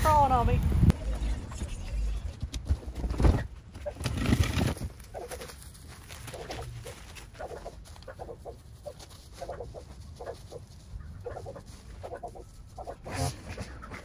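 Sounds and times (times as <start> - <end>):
bird calling: 6.3 - 14.0.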